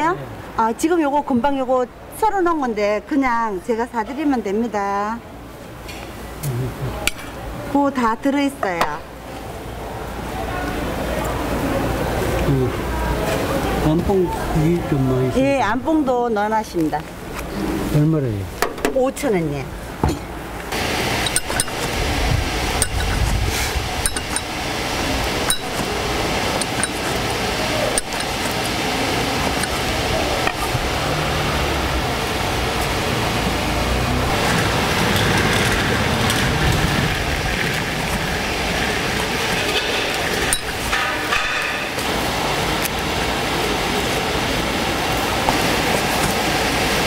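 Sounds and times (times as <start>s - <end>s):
market background noise: 0.0s - 47.0s.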